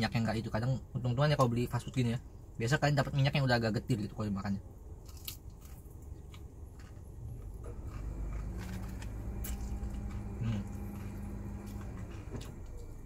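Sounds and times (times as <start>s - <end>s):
low steady hum: 0.0s - 13.0s
biting and chewing crispy food: 5.0s - 12.1s.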